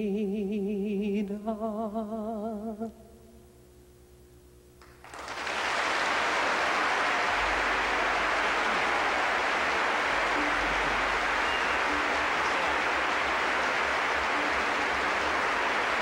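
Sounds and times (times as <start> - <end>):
audience applauding: 4.8 - 16.0.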